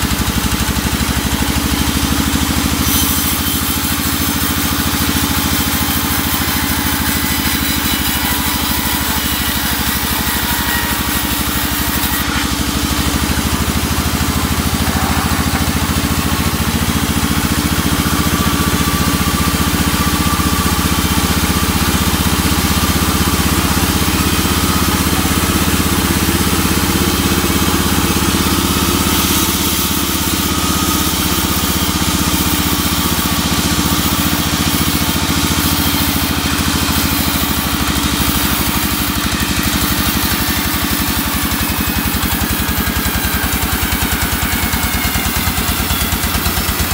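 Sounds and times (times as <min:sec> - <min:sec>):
band saw cutting wood: 0:00.0 - 0:46.9.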